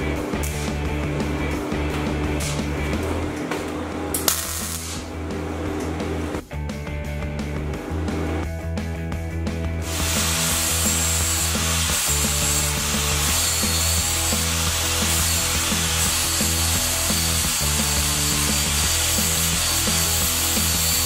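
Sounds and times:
background music with bass line: 0:00.0 - 0:21.0
angle grinder grinding steel: 0:09.8 - 0:21.0.

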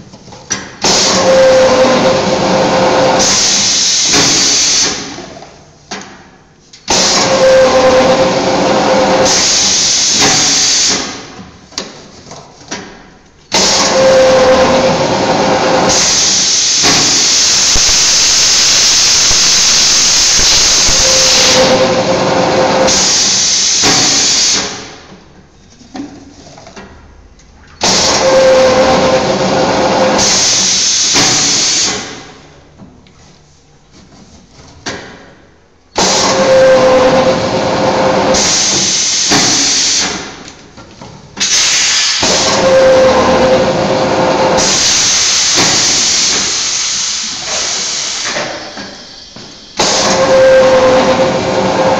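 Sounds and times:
tape slitting machine hissing: 0:06.9 - 0:11.3, 0:13.5 - 0:25.0, 0:27.8 - 0:32.3, 0:36.0 - 0:40.4, 0:41.4 - 0:51.9.

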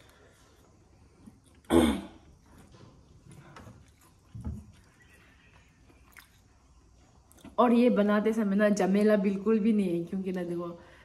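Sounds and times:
mouth and chewing noises: 0:00.0 - 0:07.6
person coughing: 0:01.7 - 0:02.2.

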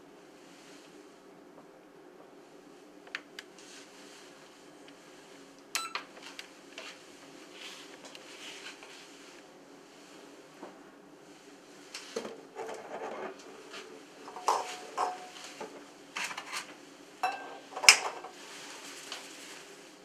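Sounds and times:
glass bowl ringing: 0:17.2 - 0:17.6.

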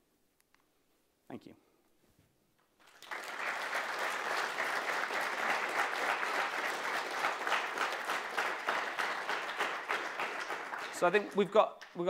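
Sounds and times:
audience applauding: 0:02.8 - 0:12.0.

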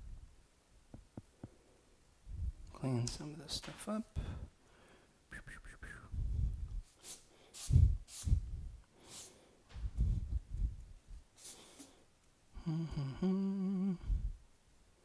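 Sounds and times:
eraser rubbing on paper: 0:06.9 - 0:08.4, 0:09.0 - 0:09.4.

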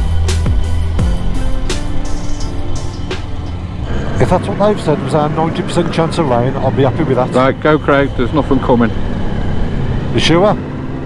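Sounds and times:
background music with drums and bass: 0:00.0 - 0:04.7.

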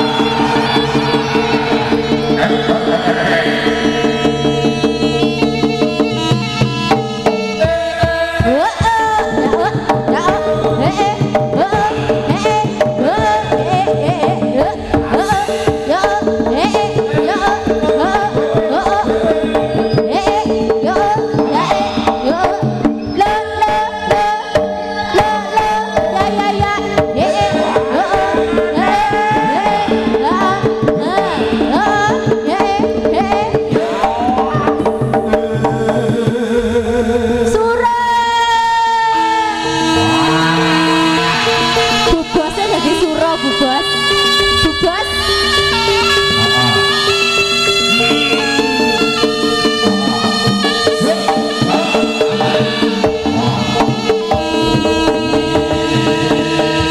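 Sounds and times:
held drone note: 0:00.0 - 0:07.7, 0:39.0 - 0:56.9
wailing melody: 0:00.0 - 0:08.2, 0:09.2 - 0:56.9
hand drum strokes: 0:00.0 - 0:23.2, 0:47.9 - 0:56.9.

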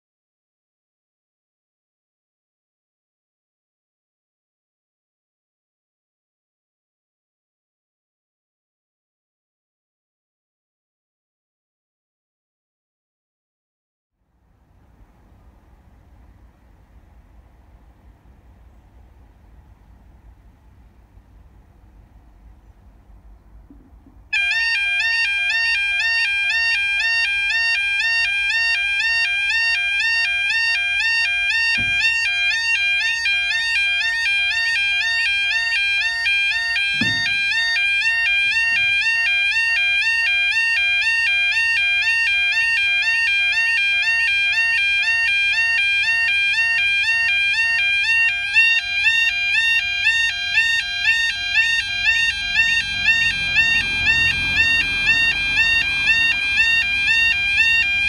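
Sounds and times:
level crossing warbling alarm: 0:24.4 - 0:58.0
dull knocks: 0:31.7 - 0:32.2, 0:36.8 - 0:37.6.

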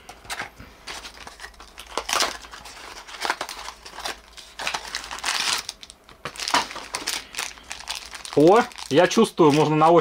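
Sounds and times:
plastic wrappers crinkling: 0:00.2 - 0:10.0.

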